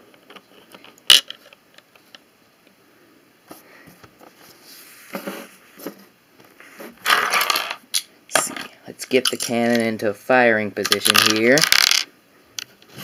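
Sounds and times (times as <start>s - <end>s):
plastic bricks clicking: 7.1s - 9.9s, 10.8s - 12.7s.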